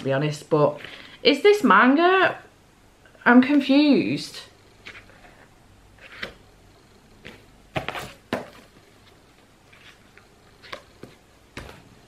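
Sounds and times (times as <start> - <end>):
books knocking and rustling: 7.2 - 9.2, 9.8 - 12.0.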